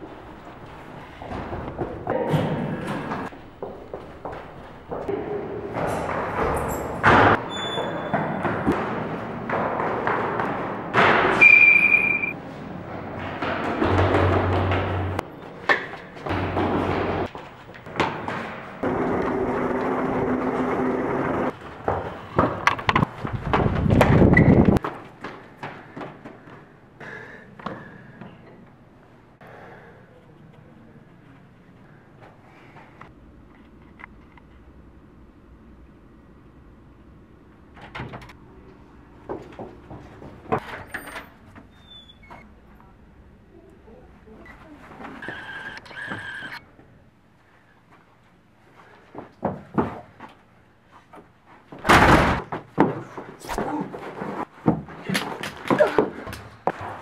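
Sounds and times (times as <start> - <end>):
sneaker squeak: 6.5 - 8.6, 11.3 - 12.4, 40.8 - 42.5.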